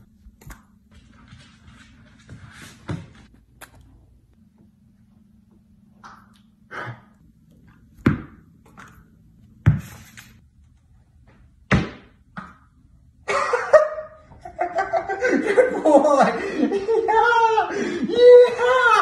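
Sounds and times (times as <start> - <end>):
tennis ball knocking indoors: 8.0 - 9.0, 11.7 - 12.8
man's loud exclamation: 16.0 - 19.0.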